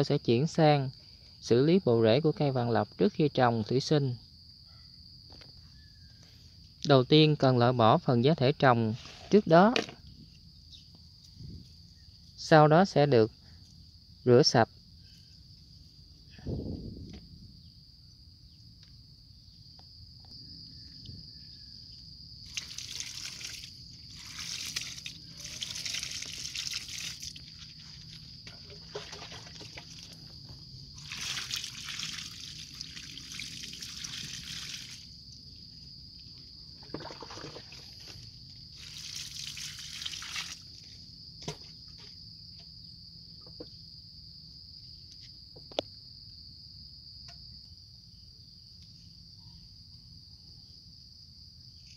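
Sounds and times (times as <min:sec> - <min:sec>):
water splashing over roots: 0:22.4 - 0:30.2, 0:31.0 - 0:35.1, 0:36.8 - 0:38.0, 0:38.7 - 0:40.7.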